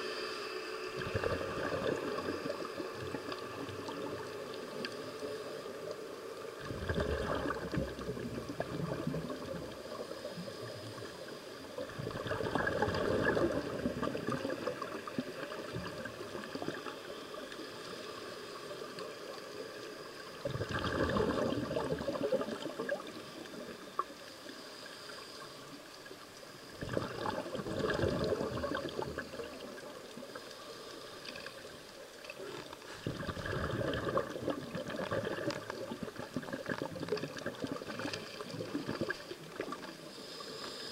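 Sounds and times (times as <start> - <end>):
water noise: 0.0 - 40.9
diver's exhaled air bubbling: 1.0 - 4.3, 6.6 - 11.0, 11.8 - 16.9, 20.4 - 23.6, 26.7 - 29.9, 33.0 - 40.9.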